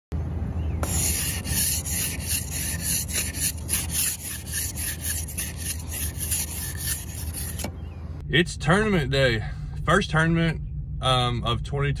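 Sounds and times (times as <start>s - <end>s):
ice scraper rasping on windshield: 0.8s - 7.7s.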